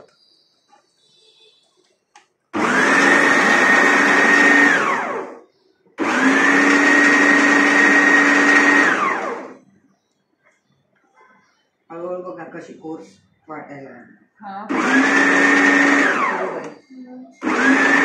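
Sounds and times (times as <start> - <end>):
food processor motor whining: 2.6 - 5.4, 6.0 - 9.6, 14.7 - 16.8, 17.4 - 18.0.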